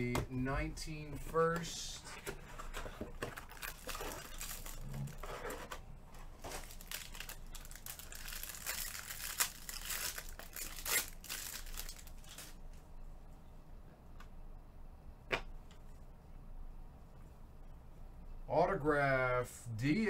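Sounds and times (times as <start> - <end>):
card pack wrapper crinkling and tearing: 3.2 - 5.7, 6.4 - 12.6.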